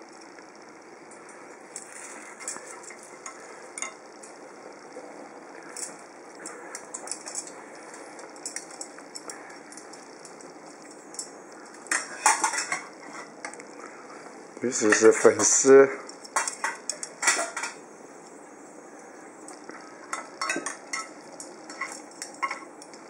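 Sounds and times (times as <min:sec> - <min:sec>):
steady hiss: 0:00.0 - 0:23.0
tongs and tableware clinking: 0:01.1 - 0:04.4, 0:05.7 - 0:13.6, 0:14.8 - 0:17.8, 0:20.0 - 0:23.0.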